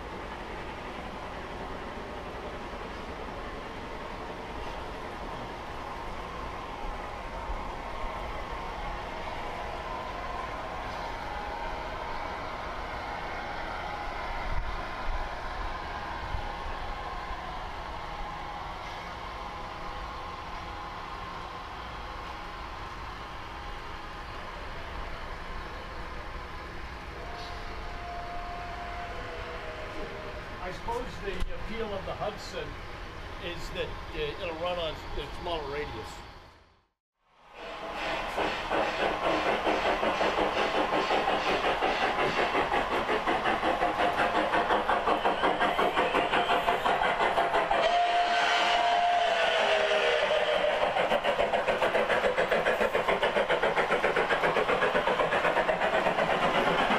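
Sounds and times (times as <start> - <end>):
steam locomotive chuffing: 0.0 - 36.2, 37.6 - 56.9
steam whistle: 27.2 - 30.4, 37.6 - 51.5
model train rolling rumble: 37.6 - 56.9.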